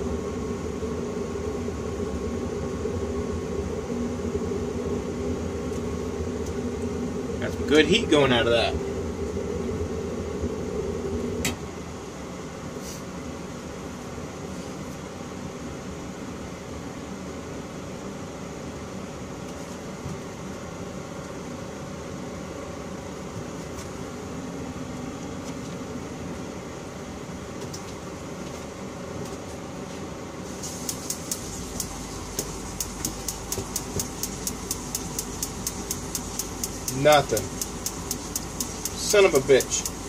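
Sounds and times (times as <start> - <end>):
gas burner rushing: 30.4 - 40.0
electronic igniter clicking rapidly: 30.5 - 40.0.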